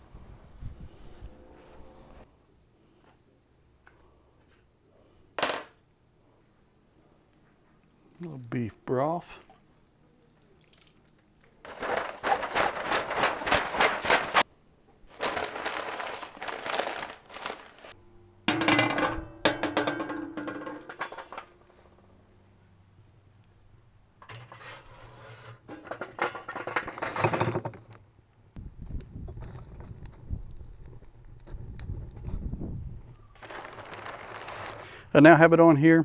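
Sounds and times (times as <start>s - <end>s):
stiff paper crinkling: 11.6s - 14.4s, 15.1s - 18.0s, 33.4s - 34.9s.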